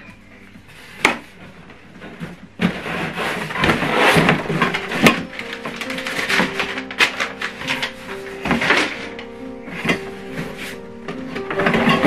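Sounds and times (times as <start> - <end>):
background music: 0.0 - 12.0
cardboard scraping and rustling: 0.6 - 12.0.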